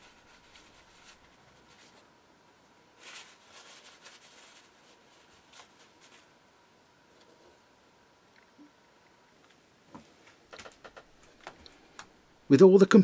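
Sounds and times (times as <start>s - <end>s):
paper towel rustling: 0.0s - 6.5s.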